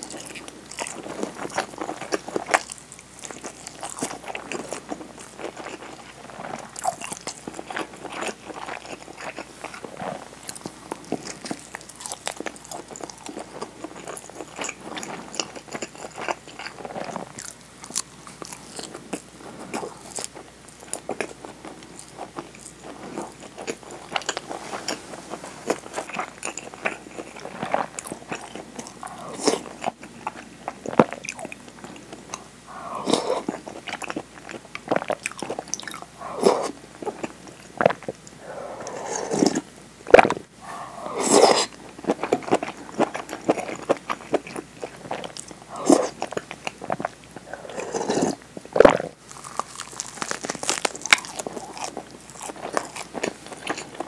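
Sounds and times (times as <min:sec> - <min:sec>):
person chewing: 0:00.0 - 0:54.0
crisp crunching bites: 0:47.9 - 0:54.0.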